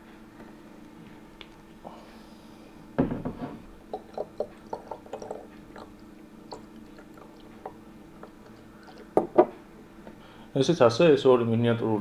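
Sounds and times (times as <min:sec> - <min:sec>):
knock: 0:03.0 - 0:03.6
whisky glugging from bottle: 0:03.9 - 0:09.5.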